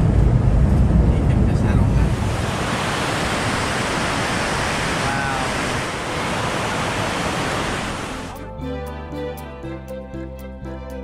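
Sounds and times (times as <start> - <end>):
water rushing over rocks: 2.0 - 8.3.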